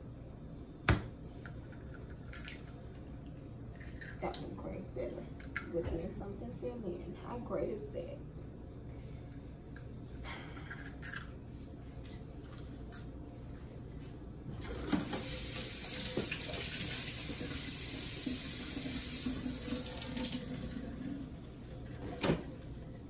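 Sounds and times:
faucet running into metal sink: 14.8 - 21.0.

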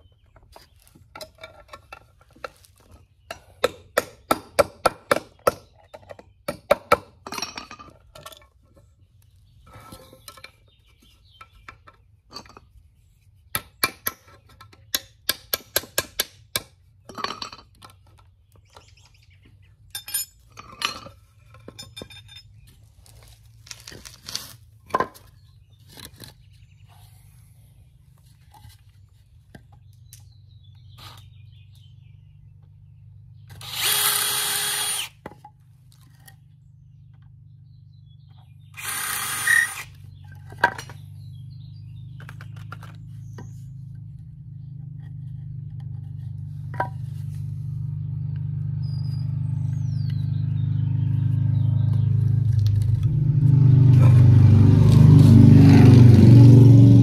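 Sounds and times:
boards clattering on concrete: 23.7 - 26.5, 40.2 - 41.1
cordless drill running: 33.6 - 35.2, 38.8 - 39.9.

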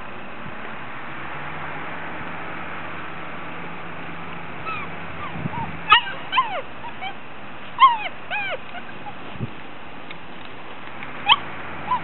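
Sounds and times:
puppies yipping and whimpering: 4.6 - 9.4, 11.2 - 12.0.

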